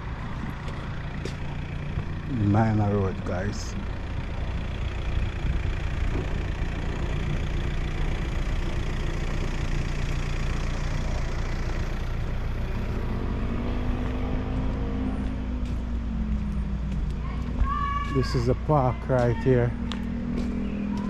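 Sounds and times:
car engine running: 0.0 - 21.0
road noise: 0.0 - 21.0
engine tone bending in pitch: 10.4 - 21.0.

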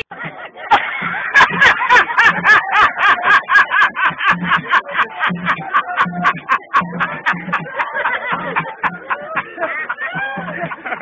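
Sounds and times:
man laughing rhythmically: 0.0 - 11.0
music with low repeating beat: 0.0 - 11.0.

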